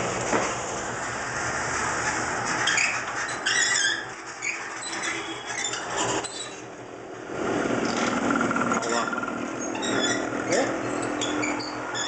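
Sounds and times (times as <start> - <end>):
barrier mechanism squeaking: 2.5 - 6.7, 7.8 - 12.0.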